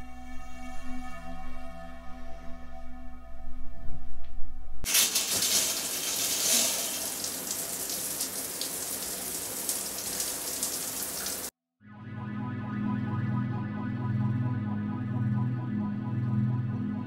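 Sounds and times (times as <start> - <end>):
shower water spraying: 4.9 - 11.5.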